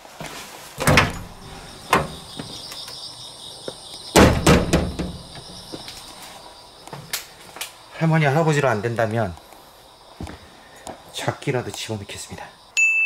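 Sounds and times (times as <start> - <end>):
crickets chirping: 0.0 - 13.0
door opening with clunks: 0.8 - 2.6, 4.1 - 5.7.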